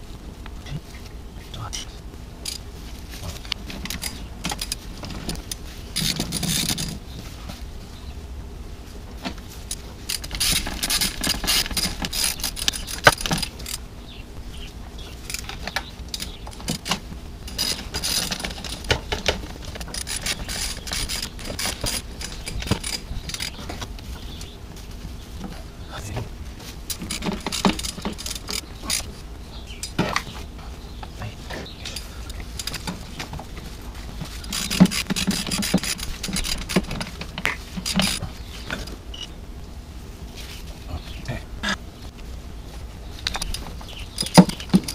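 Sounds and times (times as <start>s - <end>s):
metal tools clinking and rattling: 2.4s - 7.4s, 9.7s - 13.8s, 15.2s - 24.5s, 26.9s - 30.4s, 31.5s - 38.9s, 43.2s - 44.9s.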